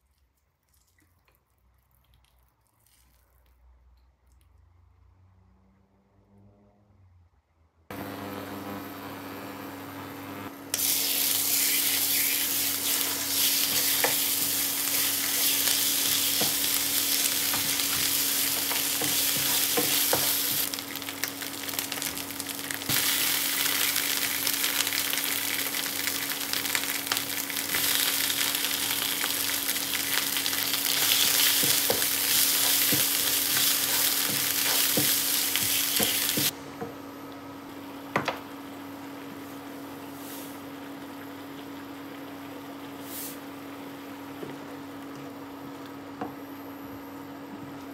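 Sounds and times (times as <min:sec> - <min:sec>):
paste sizzling in hot oil: 0:10.8 - 0:36.5.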